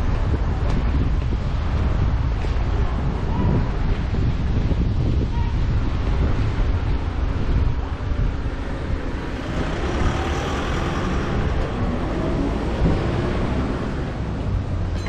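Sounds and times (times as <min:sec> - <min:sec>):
wind rumble on microphone: 0:00.0 - 0:15.0
vehicle engine passing: 0:09.0 - 0:14.6.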